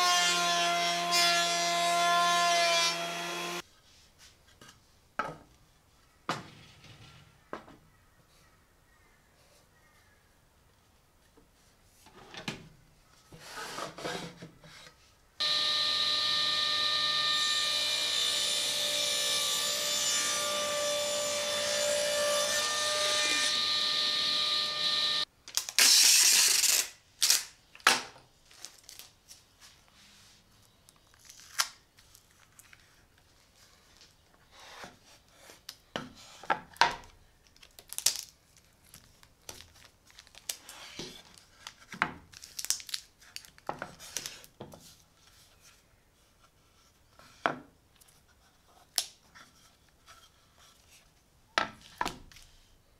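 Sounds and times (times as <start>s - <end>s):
table saw whining: 15.4s - 25.3s.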